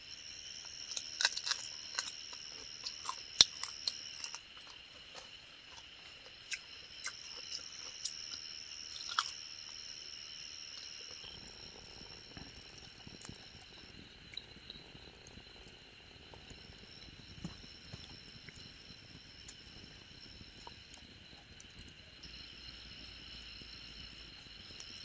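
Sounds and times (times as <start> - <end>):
night insects trilling: 0.0 - 25.0
campfire crackling and popping: 0.7 - 4.9, 10.8 - 25.0
crunches of someone eating: 0.9 - 9.4.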